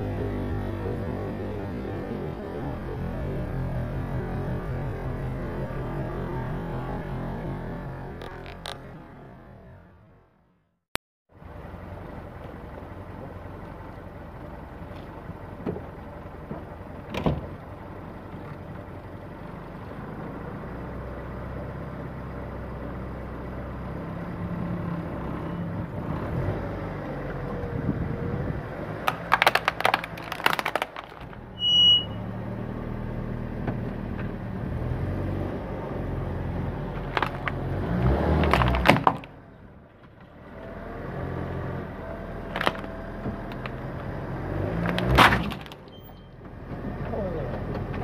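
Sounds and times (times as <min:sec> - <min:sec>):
car engine running: 0:00.0 - 0:10.6, 0:11.4 - 0:48.0
plastic toy crushing: 0:29.0 - 0:31.4, 0:37.0 - 0:37.6, 0:38.4 - 0:39.3, 0:42.4 - 0:43.8, 0:44.8 - 0:45.9
short high beep: 0:31.6 - 0:32.2.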